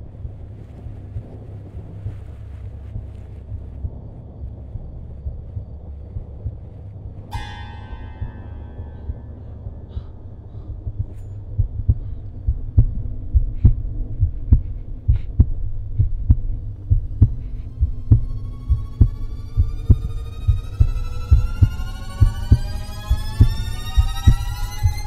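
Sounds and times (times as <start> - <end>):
heartbeat thumps: 0.0 - 25.0
rising pitched tones: 16.6 - 25.0.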